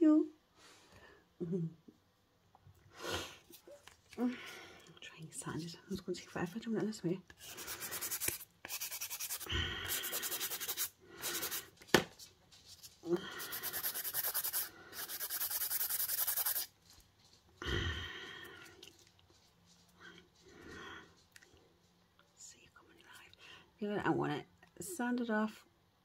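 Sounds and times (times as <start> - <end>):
nail file rasping on false nail: 7.4 - 11.7, 13.4 - 16.7.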